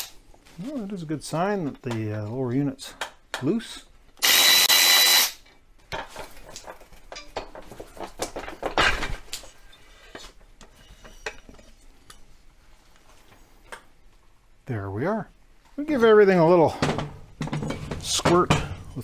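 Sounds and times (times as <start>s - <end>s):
metal clinks and knocks: 5.9s - 9.2s.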